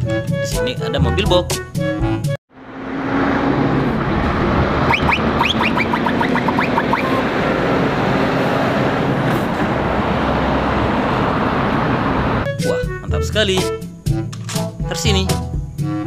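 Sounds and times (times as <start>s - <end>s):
truck diesel engine passing: 2.5s - 12.5s
tyre and road noise: 2.5s - 12.5s
short high chirps: 4.9s - 7.2s.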